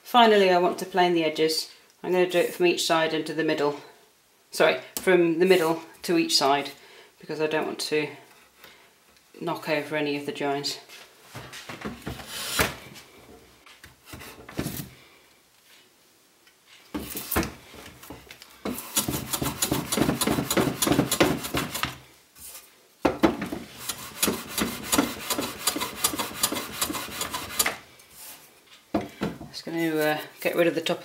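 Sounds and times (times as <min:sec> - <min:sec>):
hand plane cutting wood: 0:18.7 - 0:22.0, 0:23.7 - 0:27.8.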